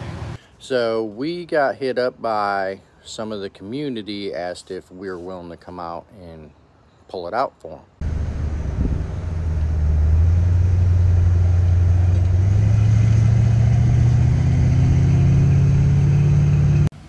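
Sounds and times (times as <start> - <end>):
vehicle engine accelerating: 8.0 - 16.9.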